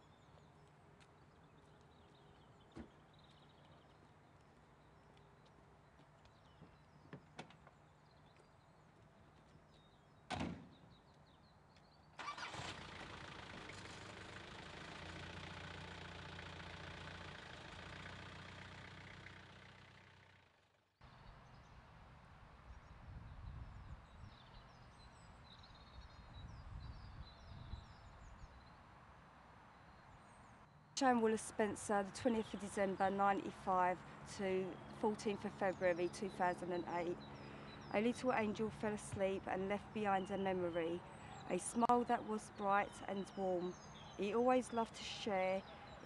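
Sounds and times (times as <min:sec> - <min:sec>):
diesel engine running: 0:12.2 - 0:20.6.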